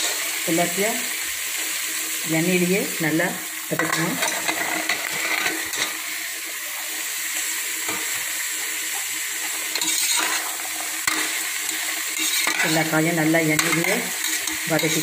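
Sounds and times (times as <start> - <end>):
vegetables sizzling in hot oil: 0.0 - 15.0
metal ladle scraping a pot: 3.8 - 6.0, 9.3 - 15.0.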